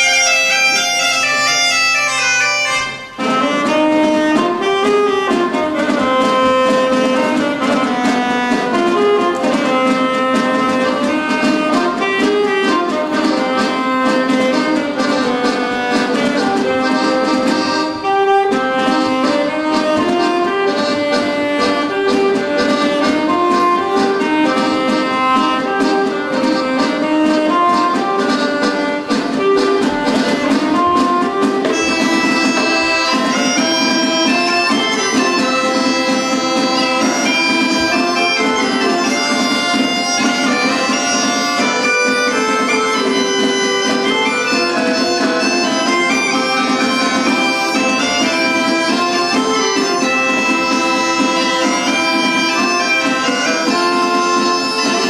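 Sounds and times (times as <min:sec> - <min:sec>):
bagpipe drone: 0:00.0 - 0:55.0
folk band playing: 0:00.0 - 0:55.0.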